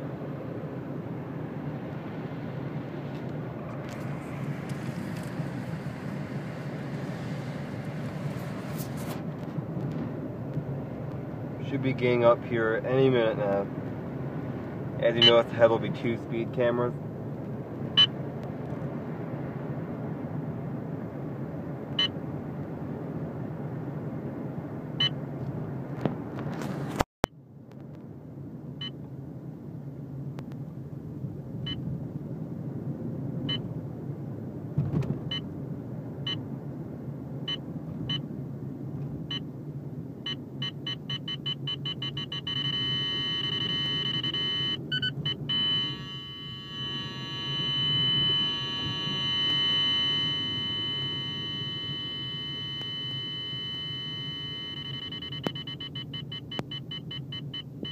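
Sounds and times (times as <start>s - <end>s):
car cabin road rumble: 0.0s - 57.9s
radar detector beeping: 15.1s - 15.5s, 40.3s - 57.9s.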